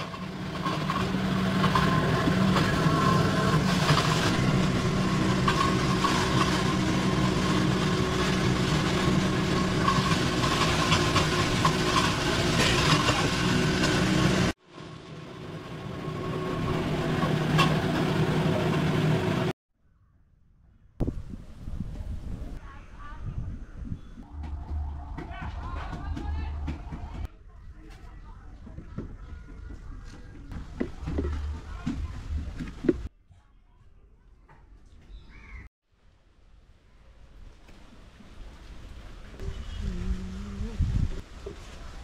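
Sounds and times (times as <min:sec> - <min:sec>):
mechanical drone: 0:00.0 - 0:19.5.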